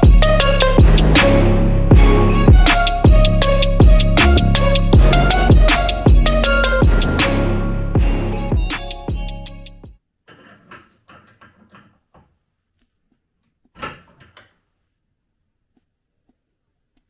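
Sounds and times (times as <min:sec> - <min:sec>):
background music: 0:00.0 - 0:10.0
clattering and handling noises: 0:10.2 - 0:14.7.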